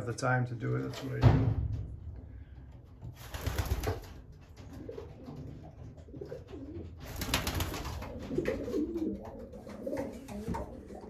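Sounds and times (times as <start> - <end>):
pigeons cooing: 4.6 - 11.0.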